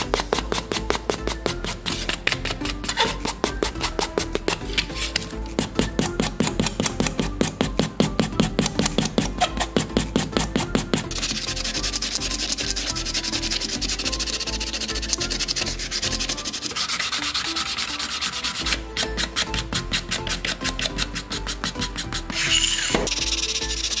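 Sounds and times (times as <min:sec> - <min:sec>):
sanding sponge scrubbing: 0:09.5 - 0:24.0.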